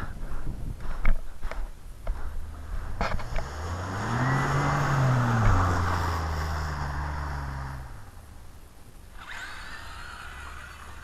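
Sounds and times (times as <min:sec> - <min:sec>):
truck engine revving: 0:02.6 - 0:08.2.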